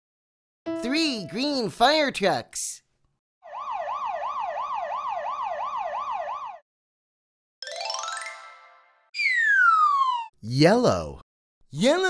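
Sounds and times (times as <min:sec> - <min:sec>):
cartoon siren wailing: 0:03.4 - 0:06.6, 0:09.2 - 0:10.4.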